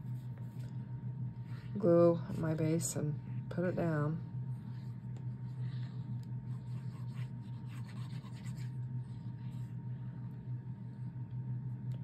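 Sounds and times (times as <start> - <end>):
steady low hum: 0.0 - 12.0
paper rubbing and scratching: 6.4 - 8.8.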